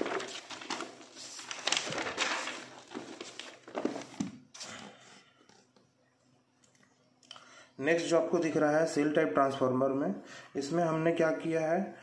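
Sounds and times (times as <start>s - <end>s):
paper rustling and crinkling: 0.0s - 4.4s.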